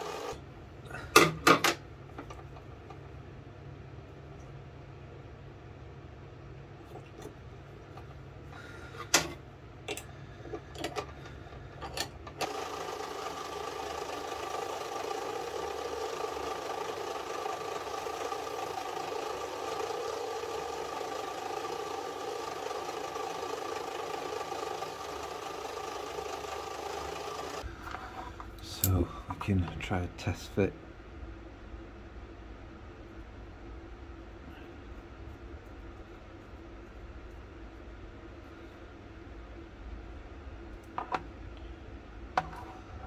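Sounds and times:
lathe running: 0.0 - 0.4, 12.4 - 28.3.

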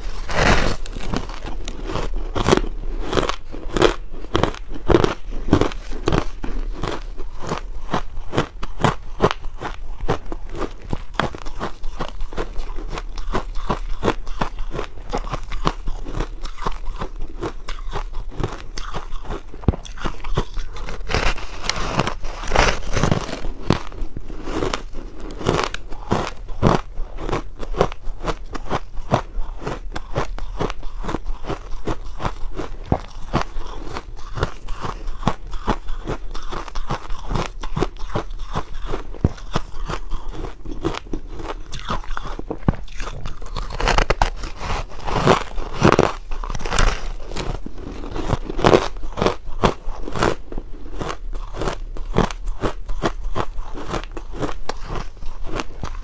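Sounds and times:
ice being chewed and crunched: 0.0 - 56.0.

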